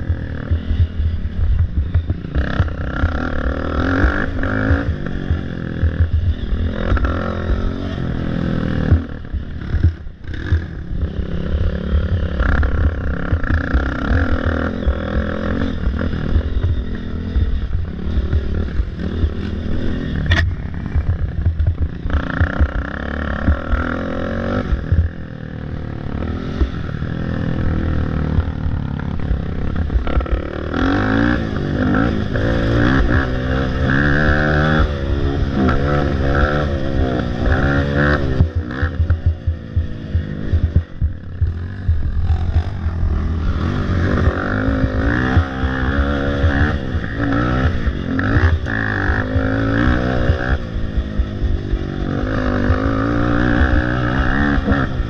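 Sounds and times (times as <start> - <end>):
quad engine revving: 0.0 - 55.0
quad knocking and rattling: 20.2 - 24.0.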